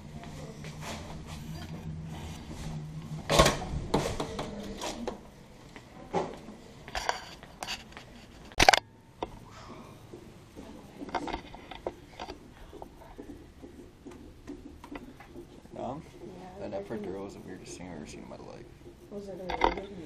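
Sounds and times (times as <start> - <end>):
footsteps: 0.0 - 8.6, 9.2 - 20.0
low steady hum: 0.0 - 20.0.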